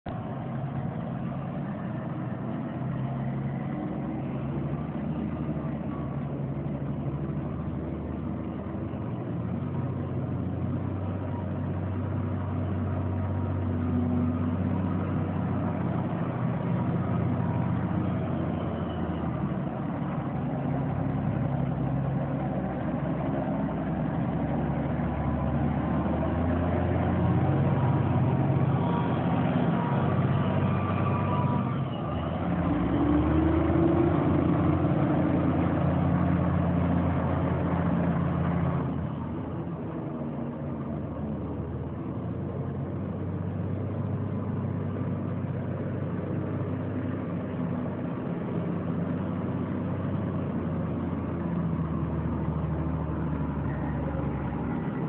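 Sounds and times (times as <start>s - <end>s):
diesel engines running: 0.1s - 55.0s.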